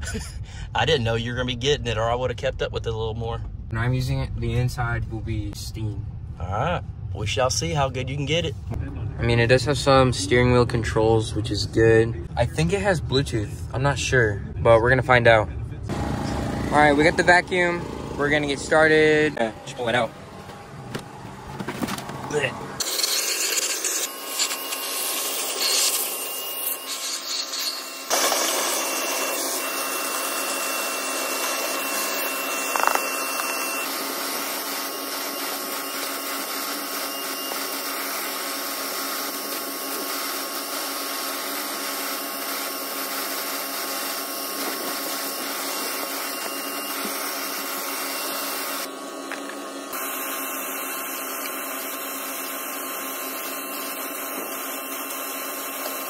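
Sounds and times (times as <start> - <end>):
shop vac sucking debris: 22.8 - 48.8.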